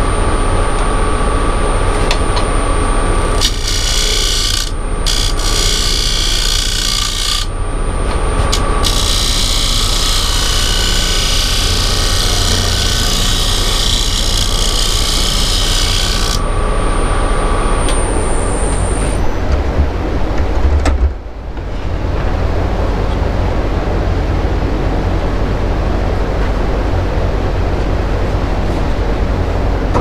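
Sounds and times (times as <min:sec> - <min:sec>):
lathe motor hum: 0:03.3 - 0:18.0
tool scraping spinning wood: 0:03.4 - 0:07.5, 0:08.3 - 0:16.4.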